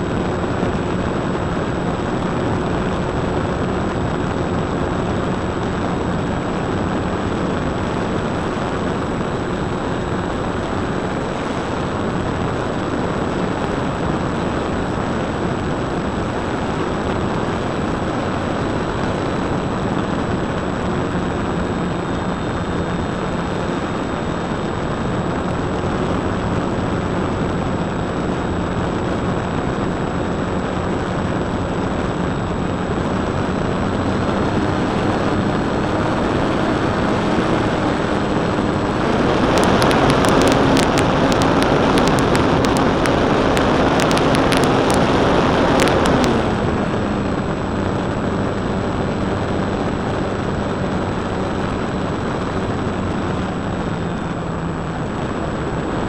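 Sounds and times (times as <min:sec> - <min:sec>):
electric motor and propeller buzz: 0:00.0 - 0:56.0
wind rush: 0:00.0 - 0:56.0.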